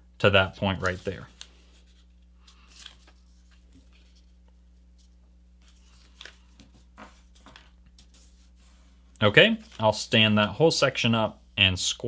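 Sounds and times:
paper rustling and crinkling: 0.6 - 4.4, 5.0 - 10.0
soft paper scrapes: 0.7 - 4.4, 5.0 - 9.9.

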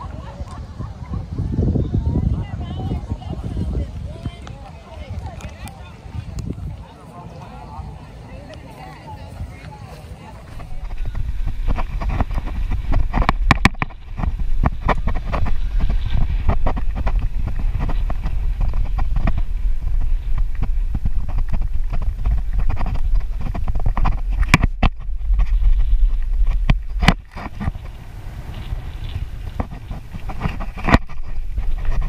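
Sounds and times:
wind buffeting microphone: 0.0 - 32.0
bicycle knocks and rattles: 10.5 - 32.0.

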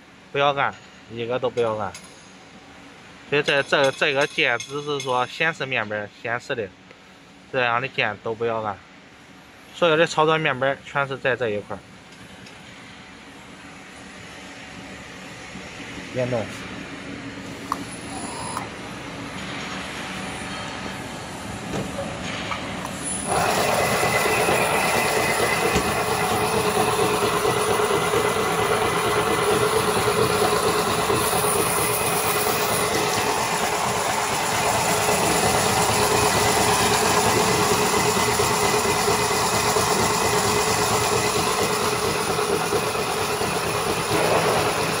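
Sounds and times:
braiding machine running: 16.9 - 45.0.

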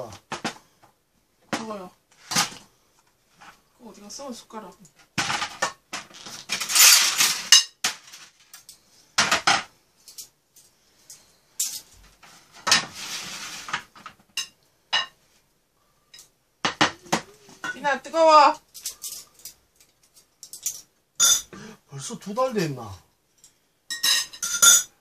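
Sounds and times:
frying pan scraping on metal tray: 12.4 - 13.9
metal utensils clinking: 18.7 - 21.5, 23.4 - 25.0.

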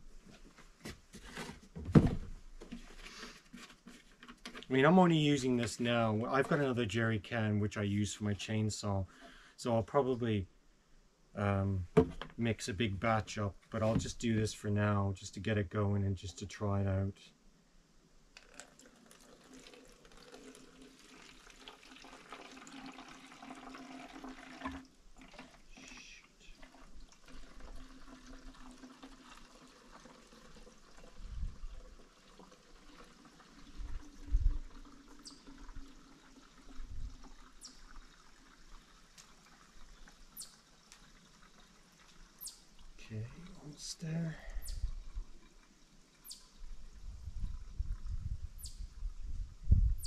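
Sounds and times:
gasoline pouring into bottle: 18.4 - 25.9, 26.6 - 42.4.

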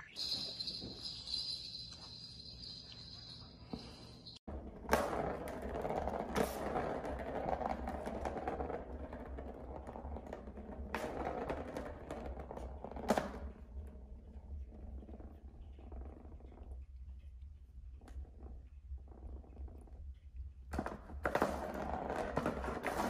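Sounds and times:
plastic ball rolling and rattling: 4.5 - 16.8, 20.7 - 23.0.

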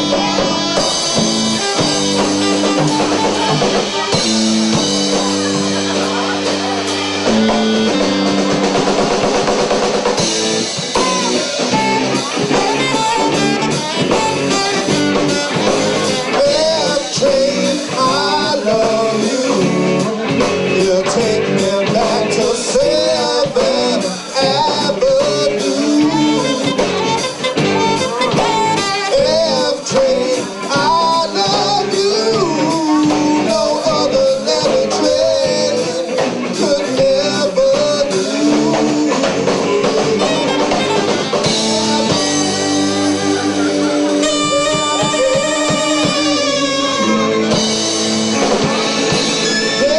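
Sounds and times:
drum kit: 0.0 - 49.9
electric guitar: 0.0 - 49.9
wavering lead melody: 38.1 - 49.9.

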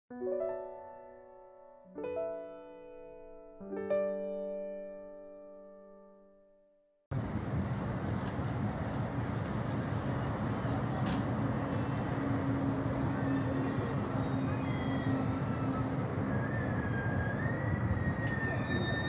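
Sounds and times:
high-pitched squeal: 9.7 - 19.0.

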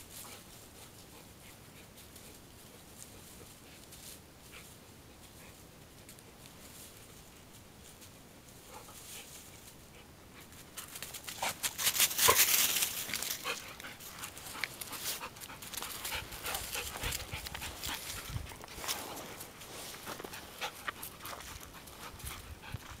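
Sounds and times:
dog panting: 8.7 - 23.0.

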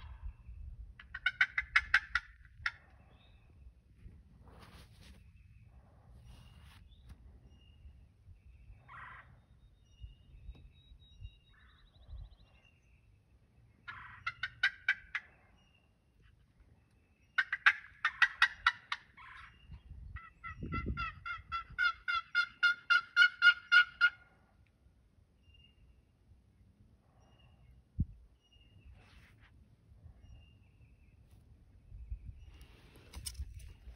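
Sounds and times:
turkey gobbling: 1.0 - 2.9, 13.9 - 15.4, 17.4 - 19.6, 20.2 - 24.4.

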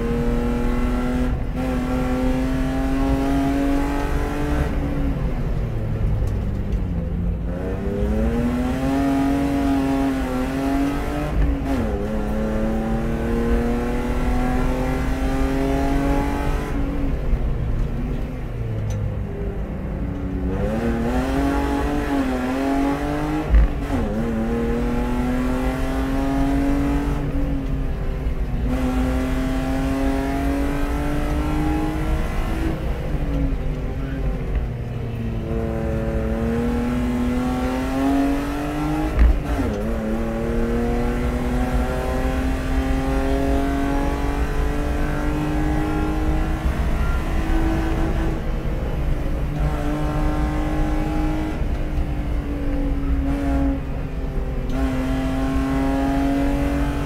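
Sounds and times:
race car engine revving: 0.0 - 5.6, 6.2 - 18.2, 20.2 - 57.0.

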